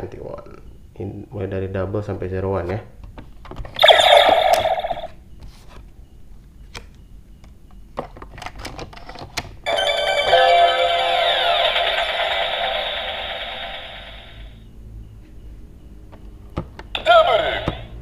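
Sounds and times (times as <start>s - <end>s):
looping electronic tune: 3.8s - 5.1s, 9.7s - 14.5s
toy electronic sound effect: 3.8s - 5.2s, 9.7s - 14.6s, 17.0s - 17.9s.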